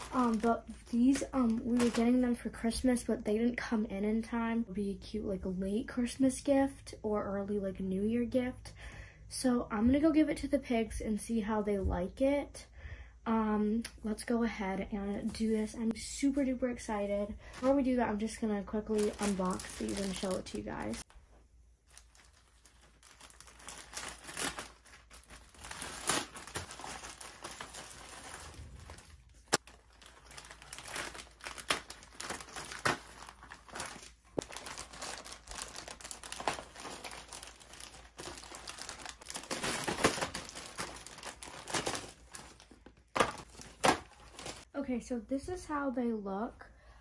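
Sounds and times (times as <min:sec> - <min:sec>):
plastic packaging crinkling: 0:00.0 - 0:02.6, 0:17.4 - 0:44.7.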